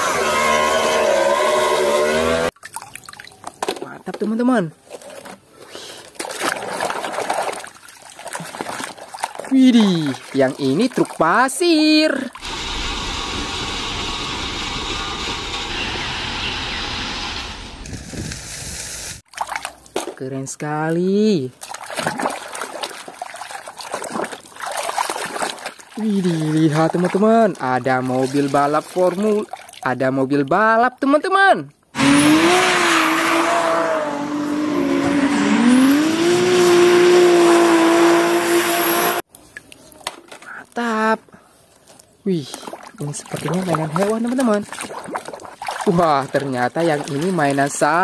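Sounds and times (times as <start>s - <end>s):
truck engine: 0.0s - 2.5s, 12.4s - 19.2s, 32.0s - 39.3s.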